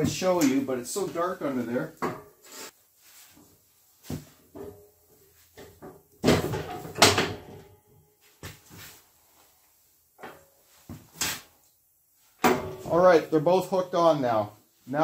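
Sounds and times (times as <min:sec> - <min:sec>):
sharp metal clank: 0:12.4 - 0:13.0.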